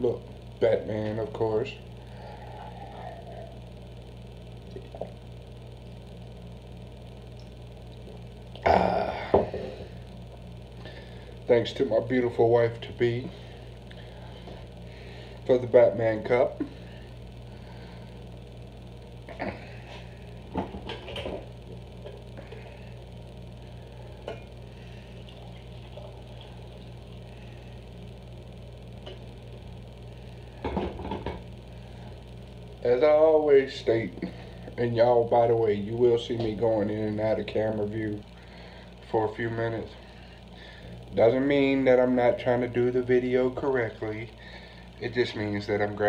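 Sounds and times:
steady low hum: 0.0s - 46.0s
man gulping: 4.6s - 5.2s, 7.4s - 10.0s, 19.3s - 21.4s.

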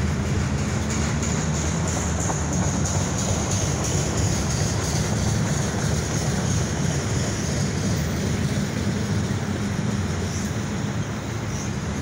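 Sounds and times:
train wheels on rail: 0.0s - 12.0s.

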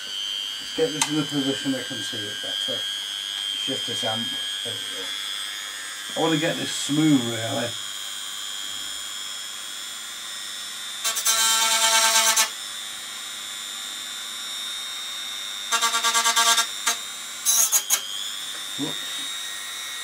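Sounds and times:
rotary tool whining: 0.0s - 20.0s
rotary tool grinding: 15.7s - 19.4s.

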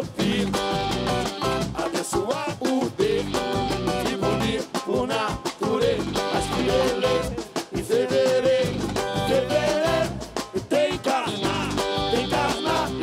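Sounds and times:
person singing: 0.0s - 0.9s, 1.7s - 13.0s
guitars: 0.0s - 1.9s, 3.0s - 13.0s
drums playing upbeat rhythm: 0.0s - 13.0s.

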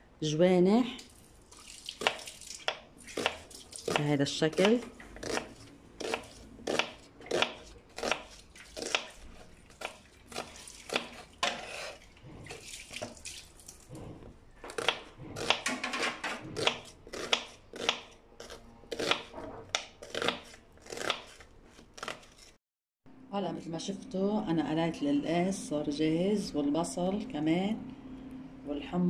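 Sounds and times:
knife slicing onion on board: 2.0s - 12.0s, 14.7s - 22.5s.

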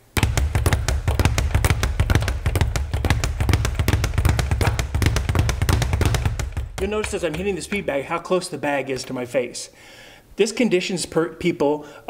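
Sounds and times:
speed bag rattling: 0.0s - 8.2s.

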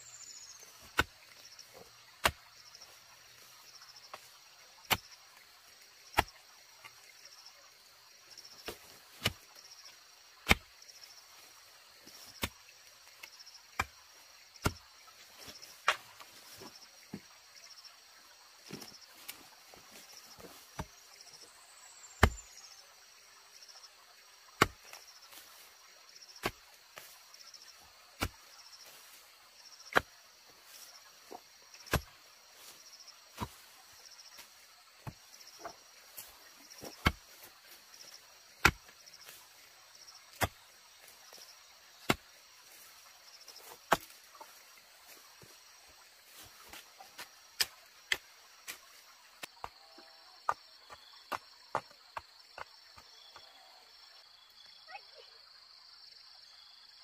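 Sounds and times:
insects chirring: 0.0s - 57.0s
hand tool chopping strikes: 22.2s - 22.4s.

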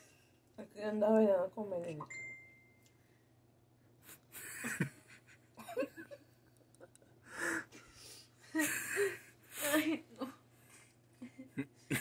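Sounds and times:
person laughing breathily: 7.2s - 10.0s.

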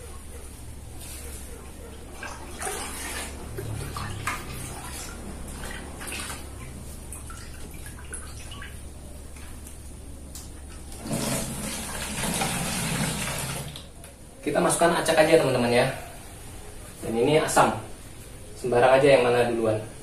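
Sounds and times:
liquid pouring and splashing: 2.1s - 9.7s, 10.6s - 14.0s.

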